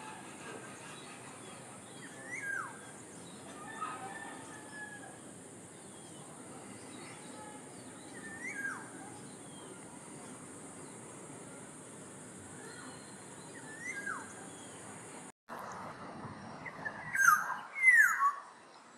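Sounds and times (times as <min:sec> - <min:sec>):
high-pitched background hiss: 0:04.3 - 0:15.3
oriole whistled call: 0:17.1 - 0:18.4.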